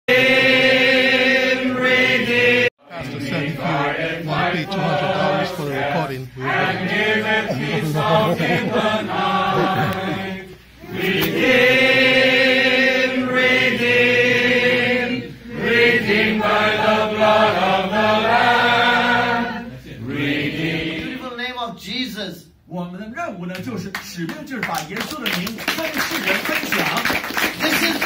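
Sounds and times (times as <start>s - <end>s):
congregation singing: 0.1s - 21.2s.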